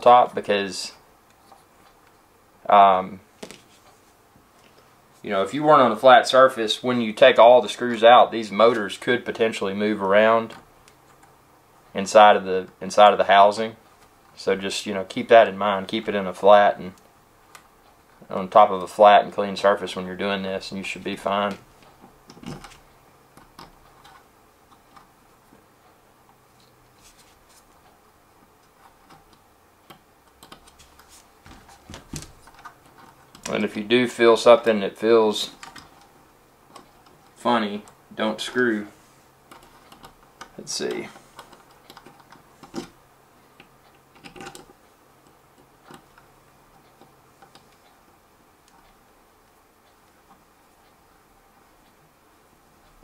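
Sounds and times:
plastic parts clicking and tapping: 28.6 - 33.6, 35.5 - 36.1, 39.5 - 40.6, 41.4 - 43.0, 43.6 - 47.8.

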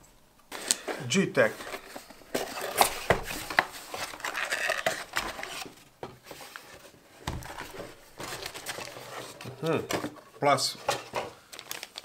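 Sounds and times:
packaging rustling and crinkling: 0.5 - 12.0.

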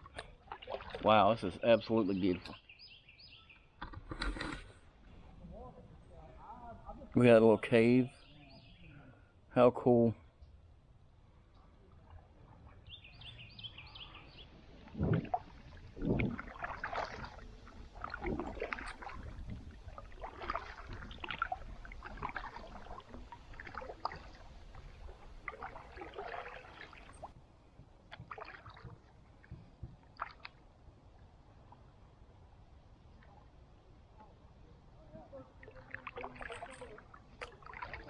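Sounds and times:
paddle splashing in water: 0.0 - 1.2, 12.2 - 27.4, 28.0 - 30.7, 35.5 - 38.0
water dripping: 18.0 - 27.3.

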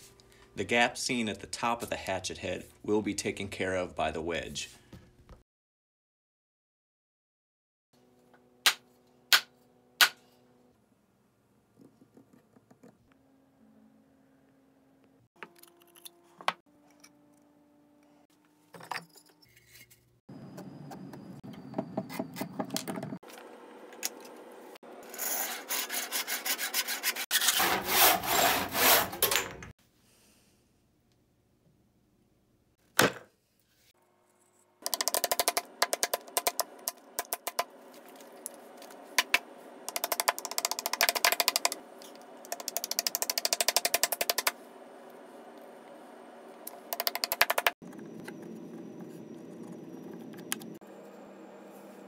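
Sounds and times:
hand saw cutting wood: 25.0 - 29.3.

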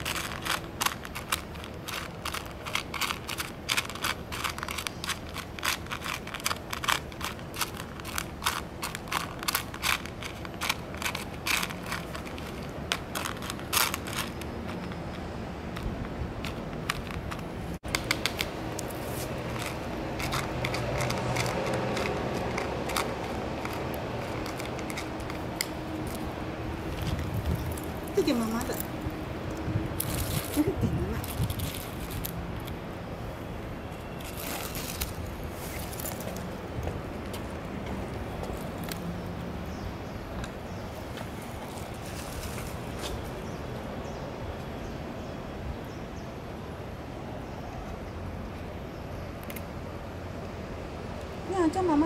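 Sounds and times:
sharp clicks and scrapes: 0.0 - 26.2.

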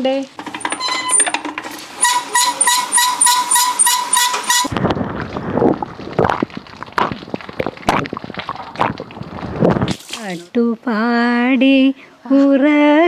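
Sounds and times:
well pulley squeaking: 2.0 - 4.7.

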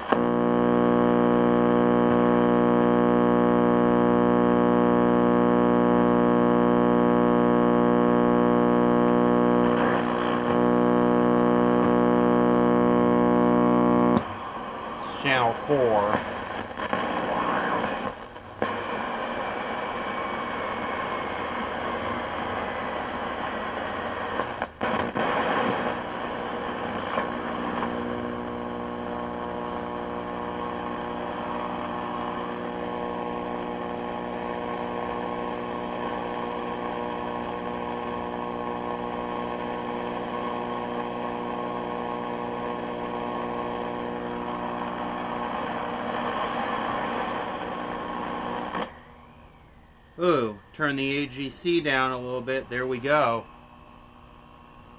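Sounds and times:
tv speaker static and buzz: 0.0 - 54.9.

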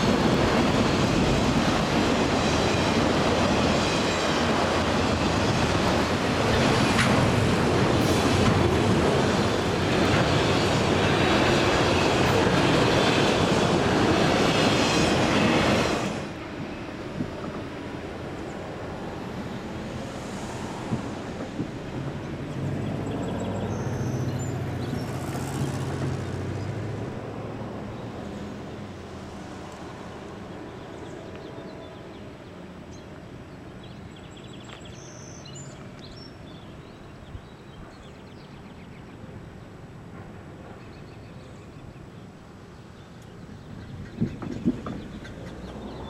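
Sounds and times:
freight train rumbling on rails: 0.0 - 46.0.

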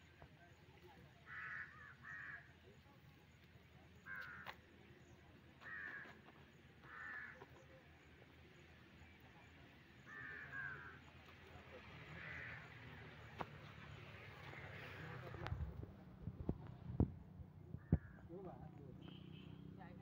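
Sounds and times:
crow cawing: 1.2 - 2.5, 4.0 - 4.6, 5.6 - 6.2, 6.8 - 7.5, 10.1 - 11.0, 12.2 - 12.8, 17.8 - 18.2.

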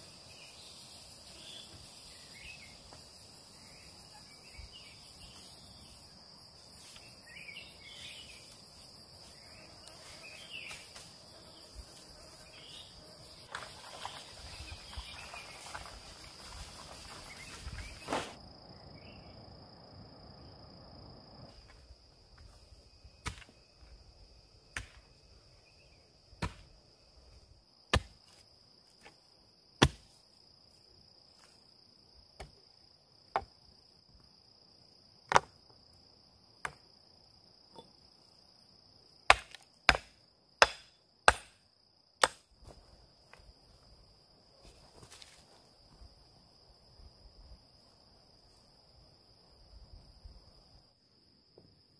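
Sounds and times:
high insect drone: 0.0 - 51.9
hatchet chopping wood: 23.2 - 23.5, 26.4 - 26.7, 27.9 - 28.2, 29.8 - 30.1, 39.3 - 41.6, 42.2 - 42.4.

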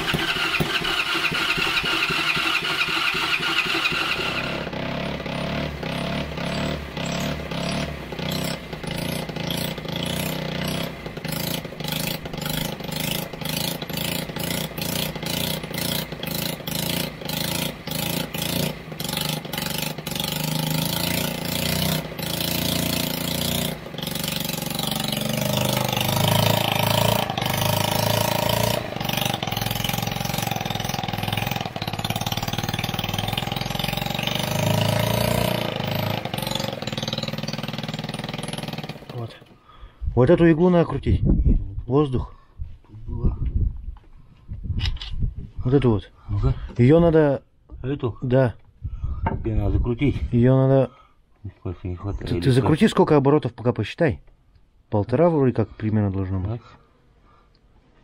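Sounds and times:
moped engine revving and stumbling: 0.0 - 39.7.

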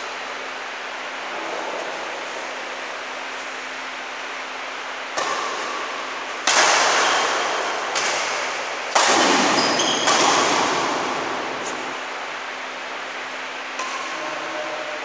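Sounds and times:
rackets hitting shuttlecock: 5.0 - 12.5, 13.7 - 15.0.

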